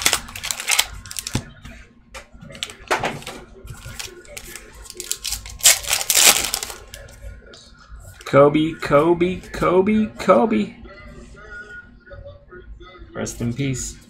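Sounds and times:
foil pack crinkling: 0.0 - 1.4, 2.6 - 7.1.

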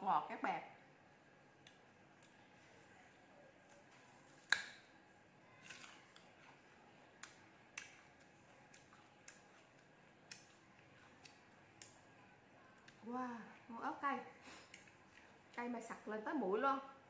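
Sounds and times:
crunchy fruit being chewed: 5.5 - 12.1.

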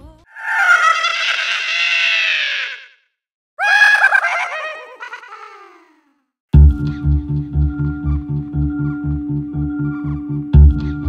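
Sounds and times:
recorded high-pitched laugh: 0.3 - 2.9, 3.6 - 6.0.

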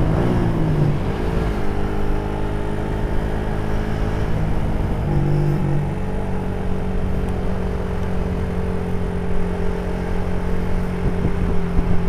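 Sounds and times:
road and wind noise: 0.0 - 12.0
vehicle engine cruising: 0.0 - 12.0.

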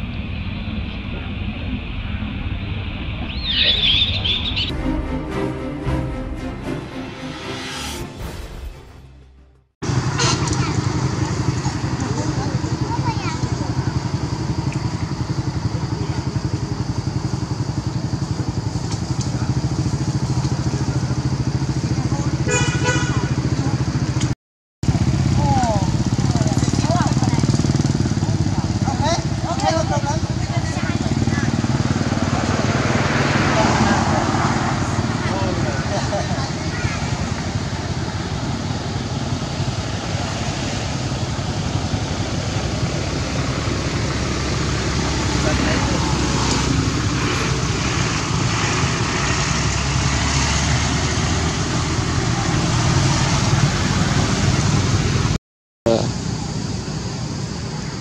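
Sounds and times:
road traffic rumble and hiss: 0.0 - 4.7, 9.8 - 58.0
motorcycle engine idling: 9.9 - 32.6.

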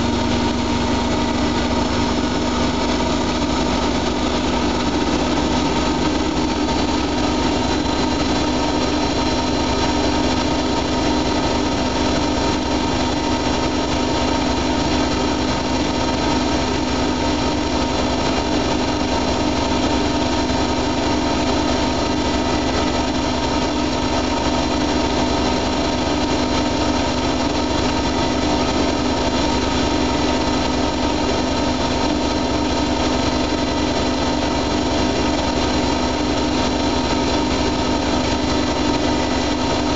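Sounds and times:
washing machine drum spinning: 0.0 - 39.9.

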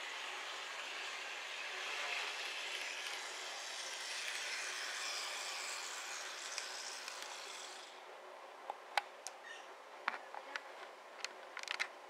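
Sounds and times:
model tram motor whirring: 0.0 - 8.1.

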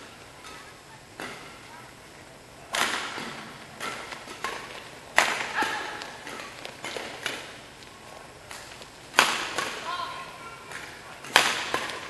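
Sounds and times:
rackets striking shuttlecock: 0.4 - 1.6, 2.7 - 7.6, 8.5 - 9.9, 10.6 - 12.0
court shoes squeaking: 2.8 - 12.0.

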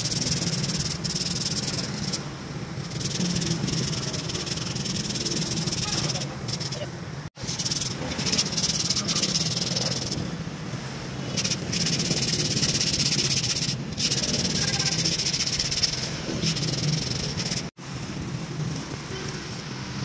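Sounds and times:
aerosol spray hissing: 0.0 - 6.8, 11.3 - 17.7.

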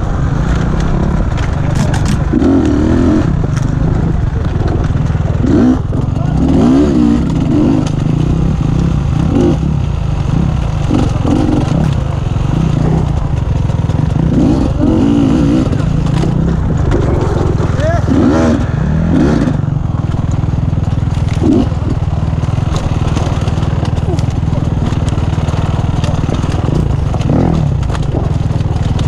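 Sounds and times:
knocks and clatter over rocks: 0.0 - 29.0
motorcycle engine revving: 0.0 - 29.0.

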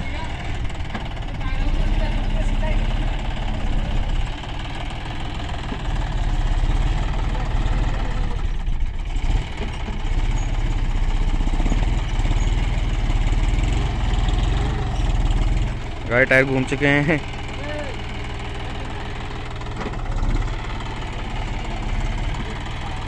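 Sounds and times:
tractor diesel engine under load: 0.0 - 23.0.

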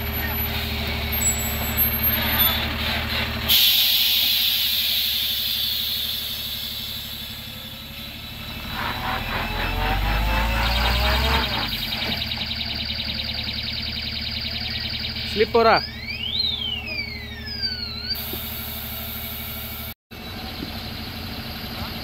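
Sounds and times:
truck diesel engine: 0.0 - 22.0
air release hiss: 3.5 - 7.4.

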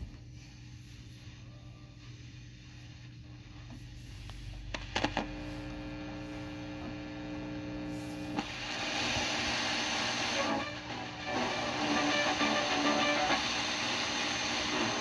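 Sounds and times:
loud static hiss: 0.0 - 15.0
radio speaker electrical hum: 0.0 - 15.0.

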